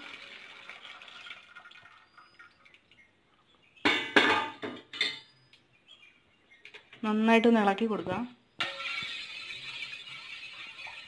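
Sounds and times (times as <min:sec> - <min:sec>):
syrup trickling into pot: 0:00.0 - 0:03.1
steel cookware clanking: 0:08.6 - 0:11.0.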